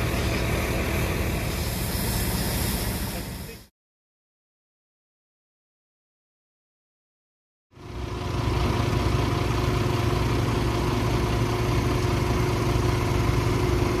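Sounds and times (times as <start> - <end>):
engine running steadily: 0.0 - 3.7, 7.7 - 14.0.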